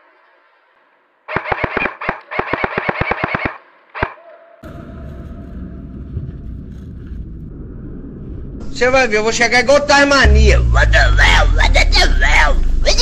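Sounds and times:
airsoft rifle firing bursts: 1.3s - 4.2s
steady rushing noise: 6.0s - 13.0s.

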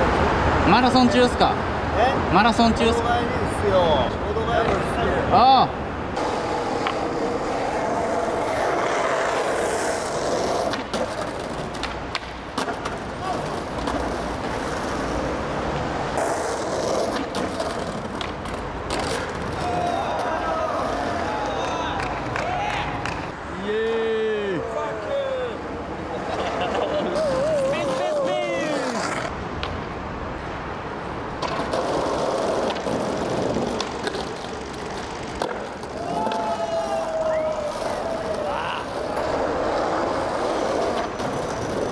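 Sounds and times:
road traffic noise: 0.0s - 41.9s
skateboard clacking on paving: 6.2s - 15.4s, 16.2s - 23.3s, 31.4s - 41.9s.

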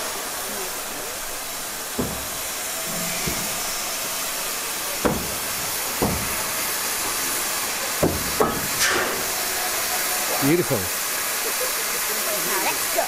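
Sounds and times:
loud steam hiss: 0.0s - 13.0s.

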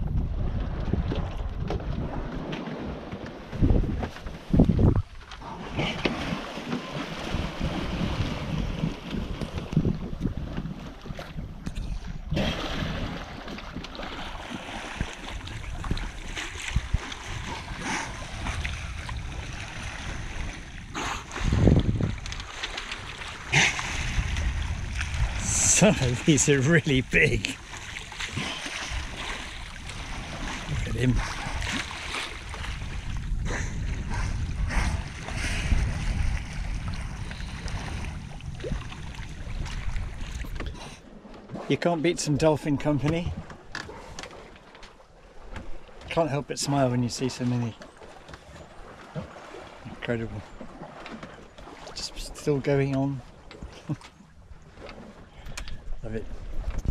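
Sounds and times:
wind buffeting microphone: 0.0s - 41.0s, 55.4s - 56.9s
sea water sloshing along hull: 0.0s - 56.9s.

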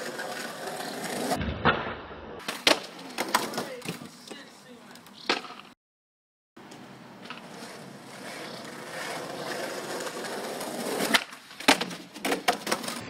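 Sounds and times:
skateboard wheels rolling on paving: 0.0s - 1.4s, 2.4s - 4.4s, 6.7s - 13.0s
skateboard clacks: 7.2s - 13.0s.

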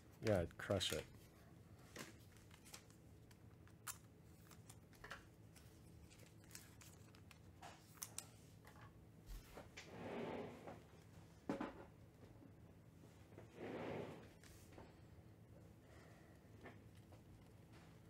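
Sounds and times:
trading cards rustling and clicking: 0.2s - 8.9s.

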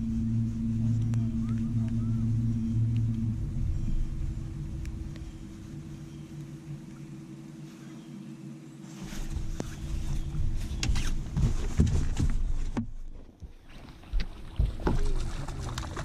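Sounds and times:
electric trolling motor humming: 0.0s - 11.4s
low rumble: 0.0s - 13.2s.

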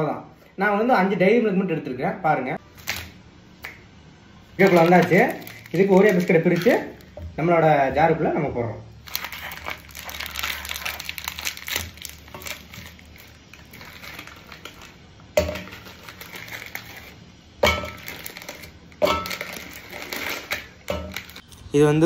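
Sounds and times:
plastic wrapper crinkling: 2.7s - 3.2s, 4.5s - 7.3s, 8.9s - 17.3s, 17.9s - 21.7s
biscuits knocking into metal jar: 17.6s - 21.4s.

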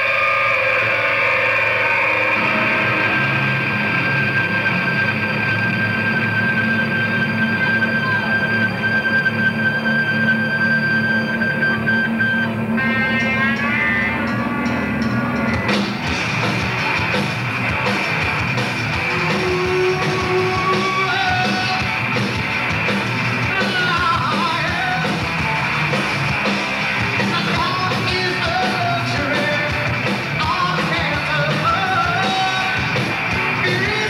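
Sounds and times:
bass guitar: 0.0s - 34.0s
drums: 0.0s - 34.0s
electric guitars: 0.0s - 34.0s
vocalist singing and yelling: 19.0s - 22.1s, 23.4s - 25.6s, 27.0s - 34.0s.

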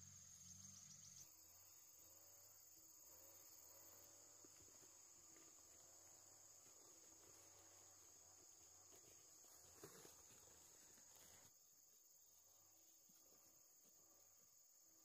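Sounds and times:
high-pitched insect chirring: 0.0s - 2.5s.

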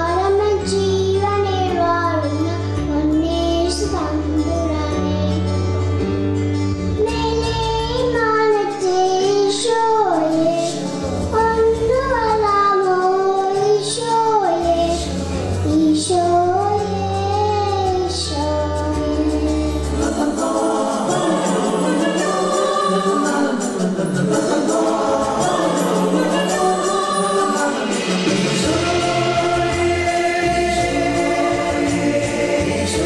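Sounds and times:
girl singing into microphone: 0.0s - 5.7s, 7.0s - 19.8s
karaoke backing track: 0.0s - 33.0s.

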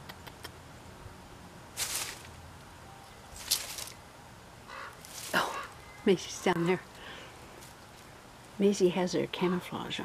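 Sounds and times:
faint outdoor background: 0.0s - 10.0s
rustling through grass and dry leaves: 1.6s - 8.7s.

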